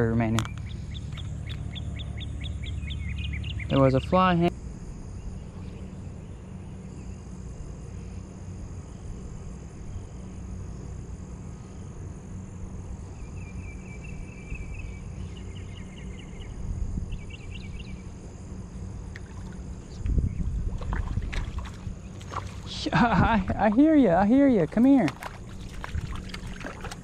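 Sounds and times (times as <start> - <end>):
low outdoor rumble: 0.0 - 27.0
high trilling bird calls: 0.4 - 4.2.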